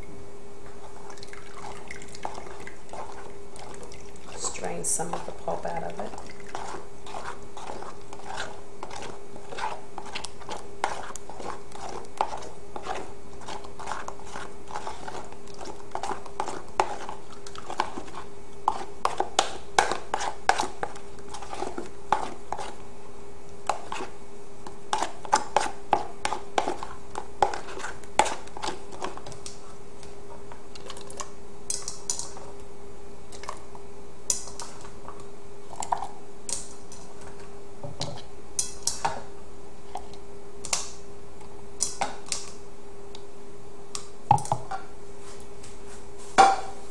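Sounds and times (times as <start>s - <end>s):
spoon scraping a plastic strainer: 0.8s - 22.8s, 23.6s - 24.2s, 24.9s - 29.5s.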